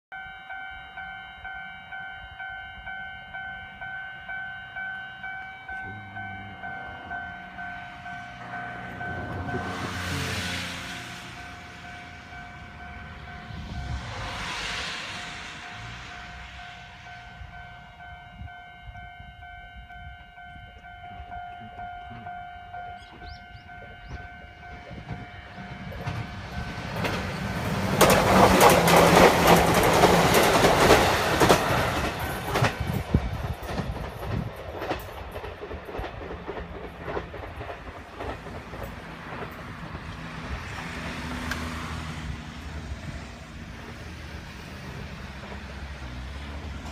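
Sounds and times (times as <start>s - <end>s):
ringing warning signal: 0.1s - 10.0s
electric train passing: 0.2s - 46.9s
wheels clicking over rail joints: 21.7s - 41.8s.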